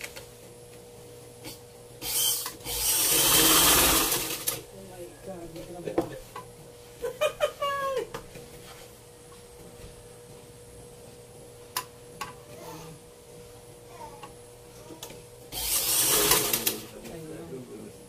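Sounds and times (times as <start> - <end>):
sewing machine faint hum: 1.4 - 4.6.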